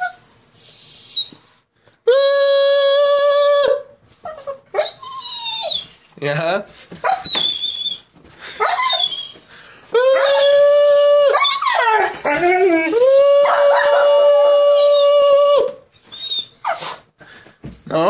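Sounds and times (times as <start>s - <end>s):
dog whining and yipping: 0.0s - 1.5s, 3.1s - 6.0s, 7.0s - 17.1s
dog howling: 2.1s - 3.9s, 9.9s - 16.4s.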